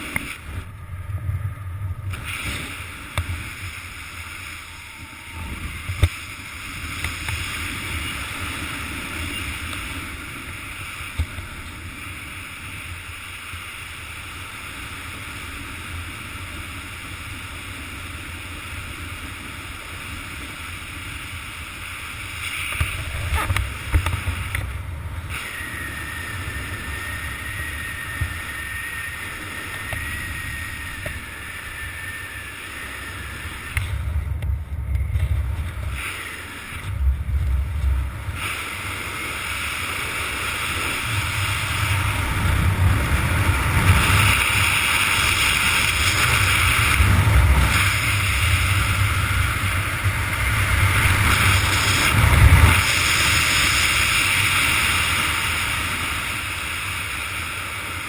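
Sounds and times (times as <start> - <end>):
wind buffeting microphone: 0.0 - 58.0
thin high whistle: 4.4 - 6.0, 25.3 - 33.8.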